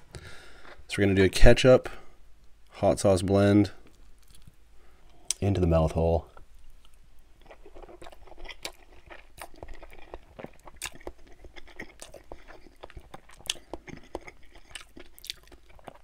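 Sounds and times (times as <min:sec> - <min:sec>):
close chewing with mouth clicks: 0:06.8 - 0:16.0.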